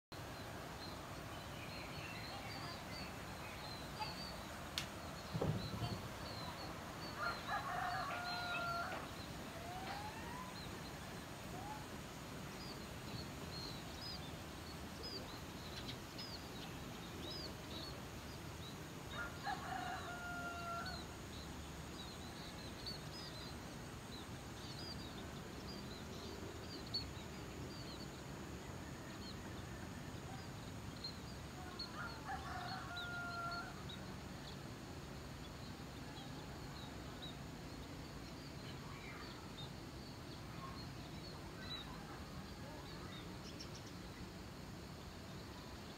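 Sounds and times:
small birds chirping: 0.1s - 45.9s
rooster crowing: 7.2s - 10.4s, 19.1s - 21.0s, 32.0s - 33.8s.

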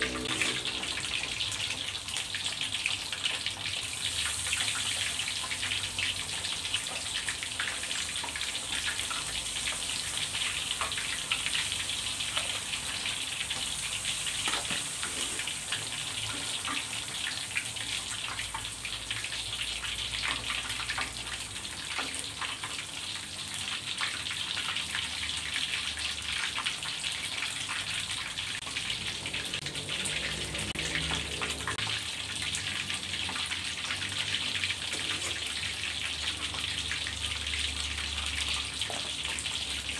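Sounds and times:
oil sizzling and crackling in wok: 0.0s - 39.9s.

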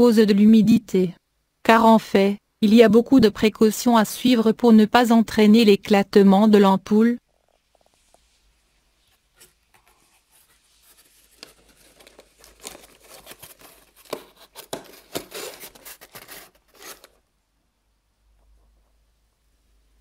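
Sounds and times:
cardboard scraping and rustling: 9.1s - 17.2s.

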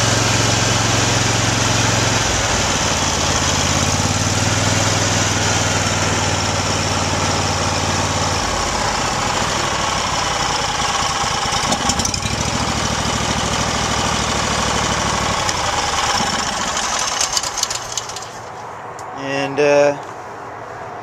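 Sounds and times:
small gasoline engine running: 0.0s - 18.5s
engine rattling knocks: 9.8s - 18.5s.

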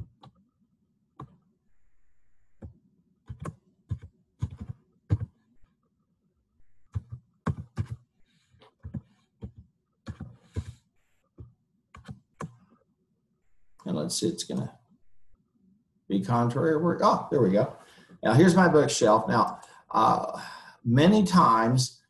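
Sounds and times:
keyboard keys tapping: 2.6s - 5.4s, 6.9s - 8.0s, 8.6s - 12.6s.

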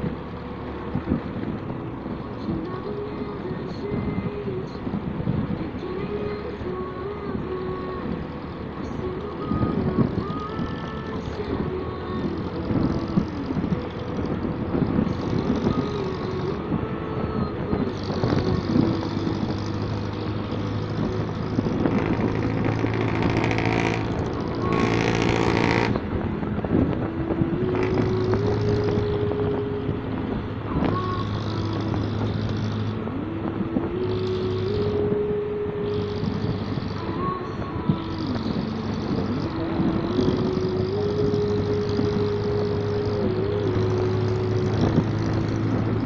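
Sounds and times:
motorcycle engine running: 0.0s - 46.0s
road noise: 0.0s - 46.0s
rush of noise: 0.0s - 46.0s.

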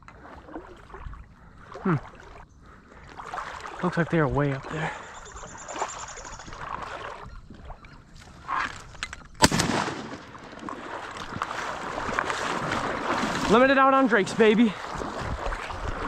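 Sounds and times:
water sloshing: 0.0s - 16.0s
shotgun shot: 9.4s - 10.4s.

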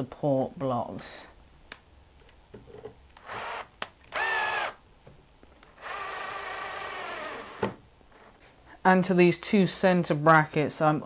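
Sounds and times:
drill motor whining: 3.2s - 4.8s, 5.7s - 8.3s.

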